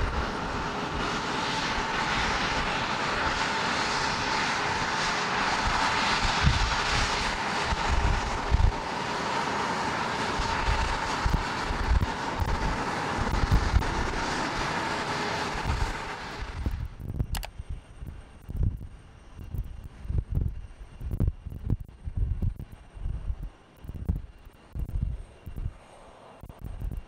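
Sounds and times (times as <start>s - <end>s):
wind buffeting microphone: 0.0s - 9.0s, 9.6s - 27.0s
jet engines roaring: 0.0s - 27.0s
clicks: 17.2s - 17.6s.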